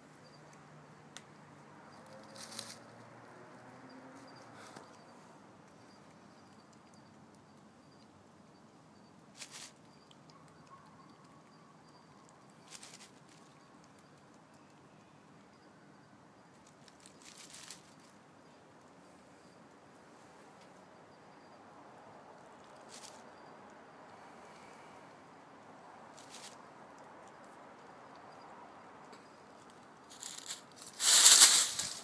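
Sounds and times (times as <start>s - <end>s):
dry leaves rustling: 2.0s - 3.0s, 9.4s - 9.8s, 12.6s - 13.4s, 16.6s - 18.1s, 22.6s - 23.2s, 26.1s - 26.6s, 30.0s - 32.0s
background hiss: 14.8s - 32.0s.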